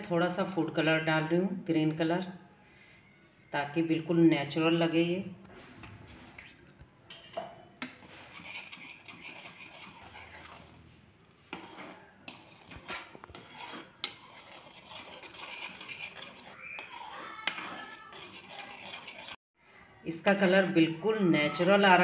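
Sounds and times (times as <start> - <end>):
metal spoon stirring thick mixture: 4.0 - 19.4, 20.1 - 22.0.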